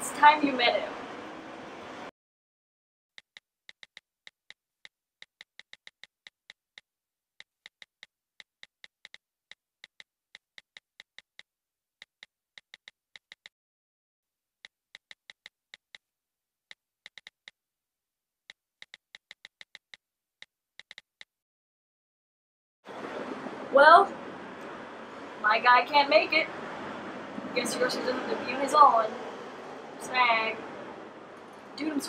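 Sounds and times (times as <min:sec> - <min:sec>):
phone keyboard clicks: 0:03.2 - 0:13.5, 0:14.6 - 0:16.0, 0:16.7 - 0:17.6, 0:18.5 - 0:21.3.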